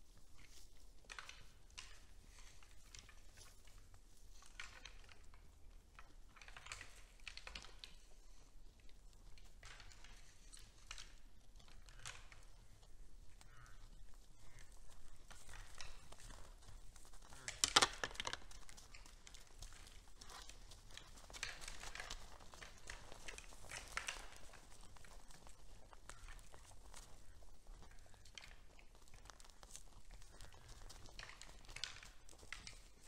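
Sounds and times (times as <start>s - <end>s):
deer rustling and crunching hay: 0.1s - 7.2s, 18.4s - 33.0s
hooves shifting in snow: 11.6s - 17.5s, 18.6s - 33.0s.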